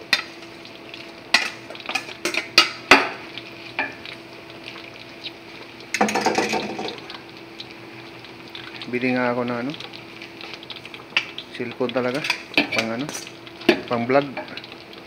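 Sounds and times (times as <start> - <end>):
faint steady hum: 0.0 - 15.0
metal colander knocking on pot: 6.0 - 7.0.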